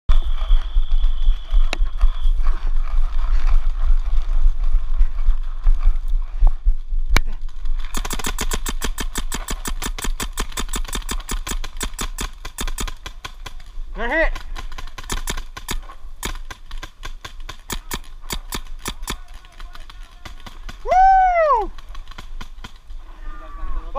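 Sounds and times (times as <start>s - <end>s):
wind rumbling on microphone: 0.1s - 9.0s
paintball marker firing: 7.9s - 13.7s, 14.3s - 20.9s.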